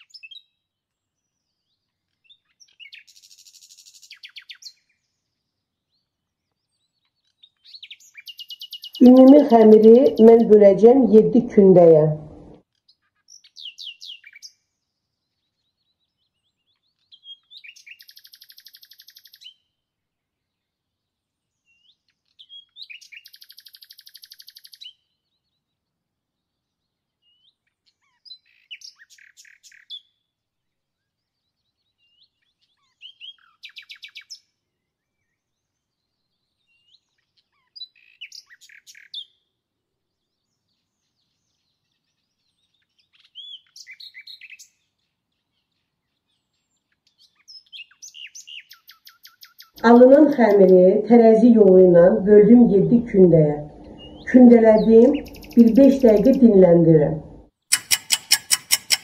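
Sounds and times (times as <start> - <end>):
songbird singing buzzy trills: 6.7 - 12.4, 16.7 - 19.7, 22.4 - 25.1, 40.4 - 44.8, 45.6 - 59.0.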